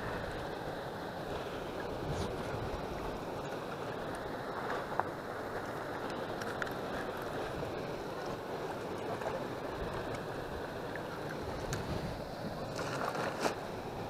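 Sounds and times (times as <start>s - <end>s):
choppy river water: 0.0s - 14.0s
wind on microphone: 1.8s - 3.2s, 9.7s - 13.1s.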